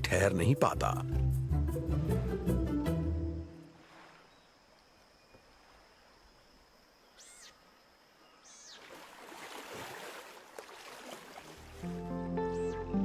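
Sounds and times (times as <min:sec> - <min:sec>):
water splashing and rushing: 0:03.6 - 0:04.4, 0:08.8 - 0:12.0
short high arching calls: 0:07.0 - 0:07.7, 0:08.3 - 0:08.9.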